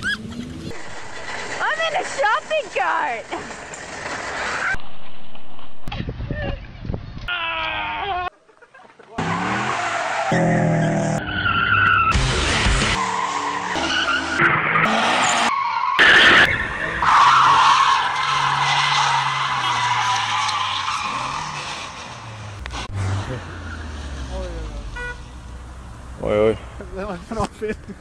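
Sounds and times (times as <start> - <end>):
car engines running: 0.0 - 4.8, 9.1 - 28.0
tyre squeal: 15.2 - 23.9.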